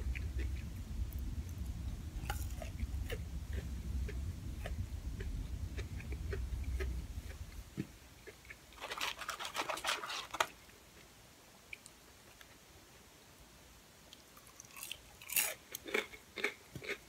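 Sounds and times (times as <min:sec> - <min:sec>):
close chewing with mouth clicks: 0:00.0 - 0:00.7, 0:01.5 - 0:09.2, 0:14.1 - 0:17.0
paper container rustling: 0:08.8 - 0:10.6.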